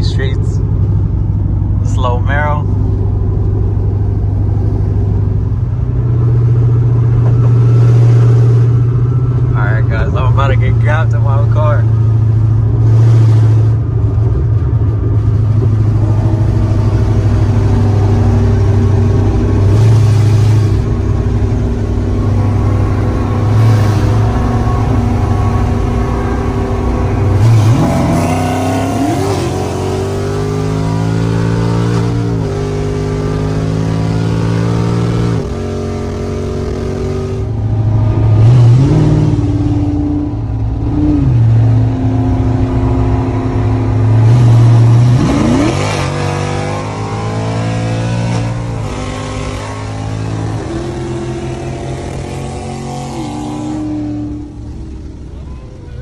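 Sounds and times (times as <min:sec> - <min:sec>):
car engine at full throttle: 0:00.0 - 0:56.0.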